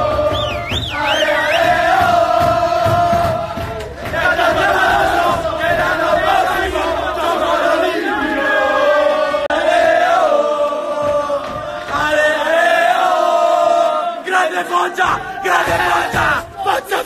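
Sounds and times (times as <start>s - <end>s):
men singing a chant: 0.0s - 17.0s
men shouting: 11.1s - 17.0s.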